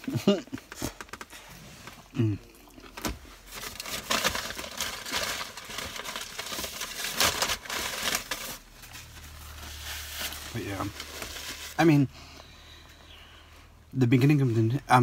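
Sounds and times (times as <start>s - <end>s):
short vocal sound: 2.1s - 2.8s.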